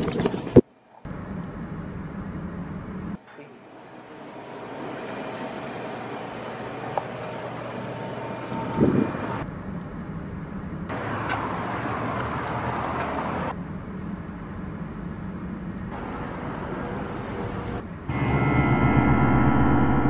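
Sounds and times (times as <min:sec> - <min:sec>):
distant traffic: 0:05.7 - 0:20.0.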